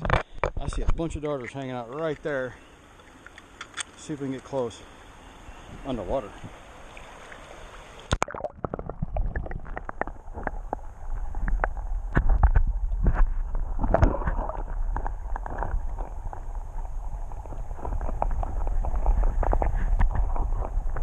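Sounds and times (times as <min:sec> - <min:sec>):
muffled underwater water rumble: 0:05.4 - 0:21.0
stones shifting underwater: 0:08.1 - 0:21.0
camera splashing into water: 0:12.1 - 0:15.8.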